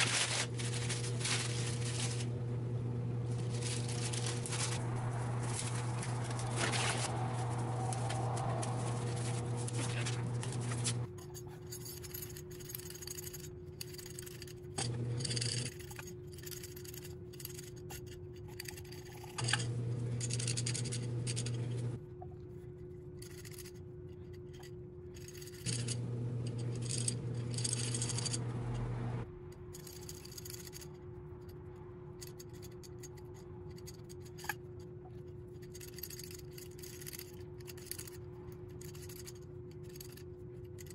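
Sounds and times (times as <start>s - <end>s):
steady hum: 0.0s - 11.8s, 19.2s - 40.9s.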